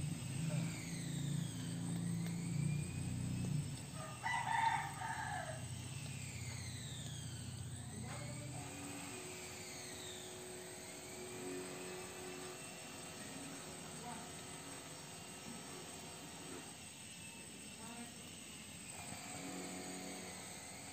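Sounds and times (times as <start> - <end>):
steady low hum: 0.0 - 18.4
rooster crowing: 3.9 - 6.0.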